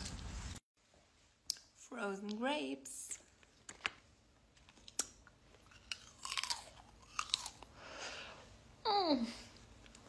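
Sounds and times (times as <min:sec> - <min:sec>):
crunching frozen grapes: 0:04.6 - 0:07.8.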